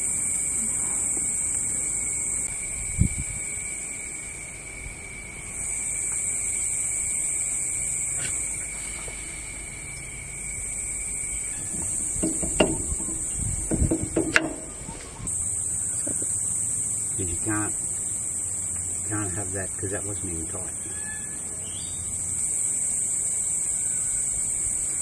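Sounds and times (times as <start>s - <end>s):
high-pitched insect chorus: 0.0s - 25.0s
lower steady trill: 9.3s - 20.5s
sharp knocks and clicks: 11.6s - 15.2s.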